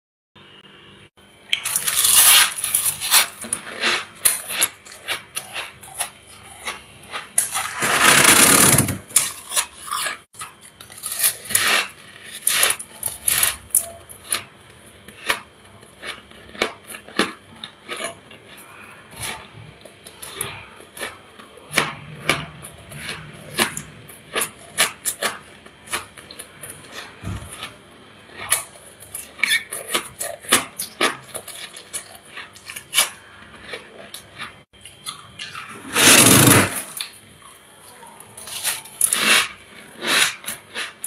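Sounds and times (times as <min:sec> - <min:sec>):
crunching frost being chewed: 0:01.5 - 0:41.0
frost scraping: 0:07.4 - 0:10.2.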